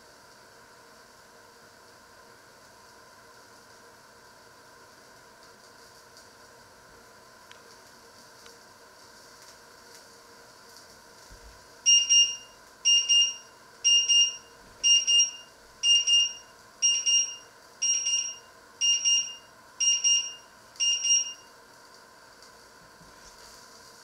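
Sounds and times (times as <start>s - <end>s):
timer alarm double beeps: 11.9s - 21.5s.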